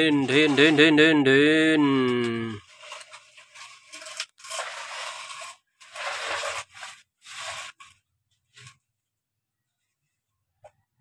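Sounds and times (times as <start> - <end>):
hands scraping sand: 0.0 - 8.0.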